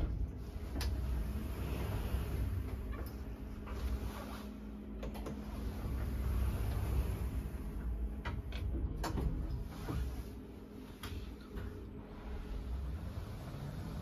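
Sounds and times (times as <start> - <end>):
low rumble of door drive: 0.0 - 4.0
elevator doors sliding closed: 0.0 - 10.4, 11.2 - 14.0.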